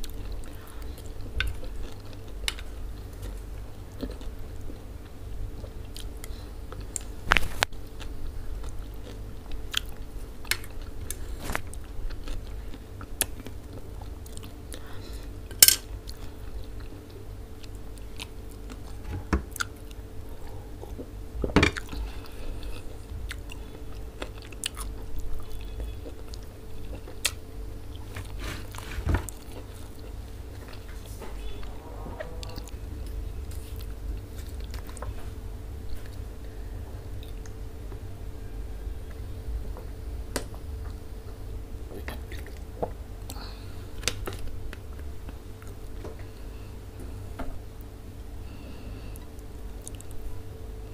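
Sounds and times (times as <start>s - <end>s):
chewing and biting food: 0.0s - 15.0s, 21.7s - 30.9s
faint steady hum: 0.0s - 50.9s.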